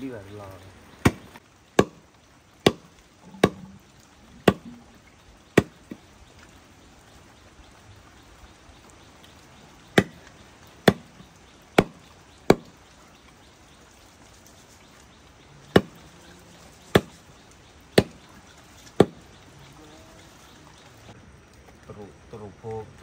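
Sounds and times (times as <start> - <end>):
chopping blows on wood: 1.0 - 2.0, 2.6 - 3.7, 5.6 - 6.0, 10.0 - 10.2, 10.8 - 11.1, 11.8 - 12.7, 15.7 - 16.0, 17.0 - 17.2, 18.0 - 18.2, 19.0 - 19.2.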